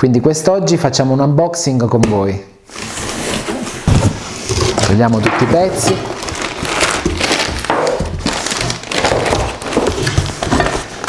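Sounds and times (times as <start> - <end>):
cardboard scraping: 2.6 - 11.0
plastic wrapping crinkling: 2.7 - 11.0.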